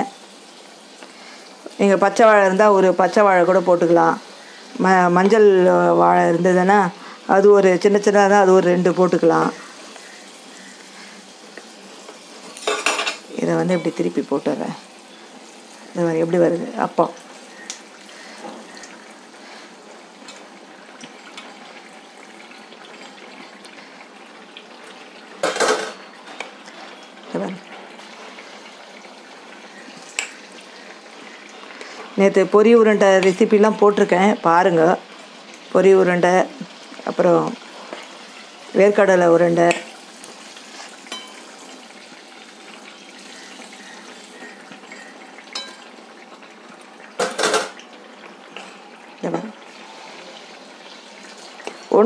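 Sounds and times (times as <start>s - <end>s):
oil sizzling and bubbling: 0.0s - 52.0s.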